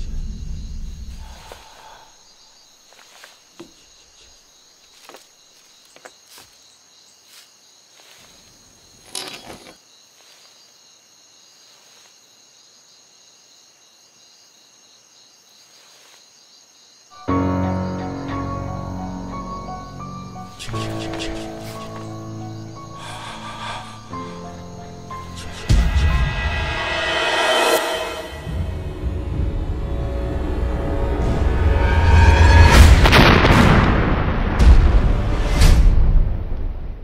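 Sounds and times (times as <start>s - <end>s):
crickets chirping: 0.0s - 33.4s
loud music: 25.1s - 33.0s.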